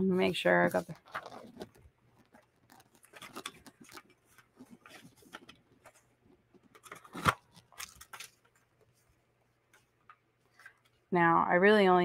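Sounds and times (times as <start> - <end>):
cardstock rustling: 0.2 - 9.1.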